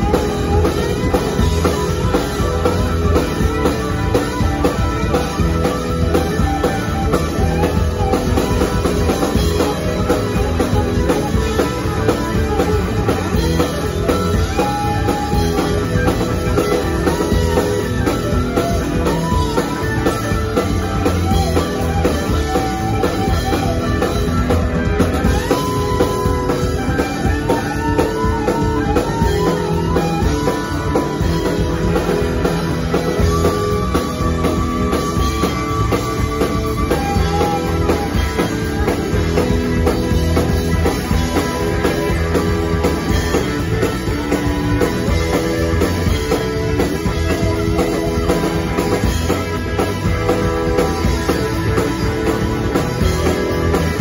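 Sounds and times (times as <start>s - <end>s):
bent wavering guitar lead line: 0.0s - 54.0s
live rock band playing loud: 0.0s - 54.0s.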